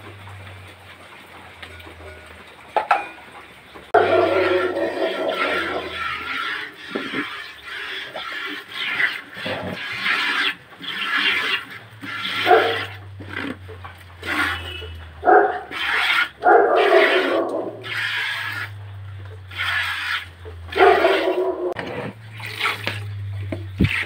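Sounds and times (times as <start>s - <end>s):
loud animal calls: 4.0s - 13.5s, 14.2s - 18.8s
milk squirting into plastic bucket: 5.2s - 14.9s, 22.3s - 23.1s
low steady hum: 17.4s - 24.0s.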